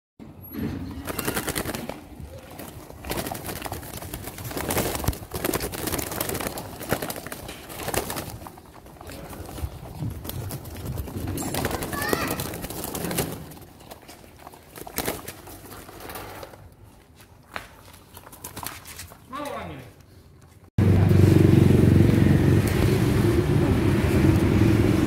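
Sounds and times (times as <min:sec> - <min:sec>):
birds fluttering: 0:00.8 - 0:16.9, 0:17.7 - 0:19.3.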